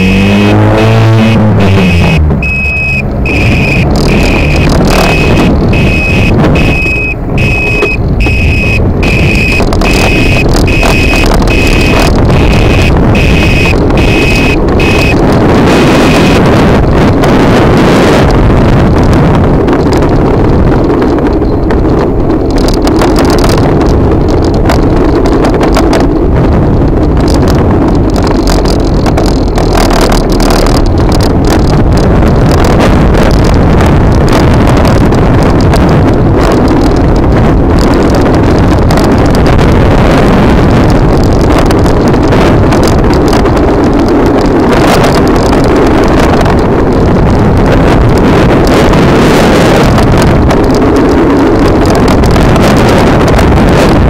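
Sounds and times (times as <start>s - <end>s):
low rumble: 0.0s - 54.0s
wind buffeting microphone: 0.0s - 54.0s
faint high whine: 1.9s - 15.2s.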